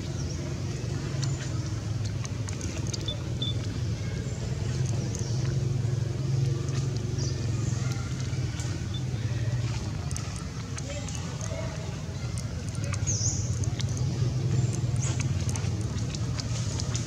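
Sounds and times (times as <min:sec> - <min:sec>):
low motor-like rumble: 0:00.0 - 0:17.0.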